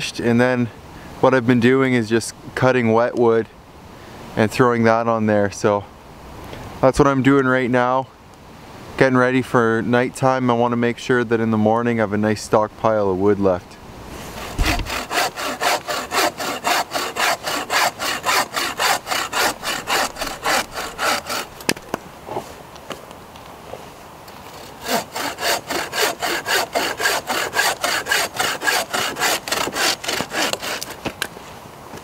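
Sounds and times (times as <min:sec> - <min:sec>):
bow saw rasping through log: 0:14.1 - 0:21.7, 0:24.5 - 0:31.1.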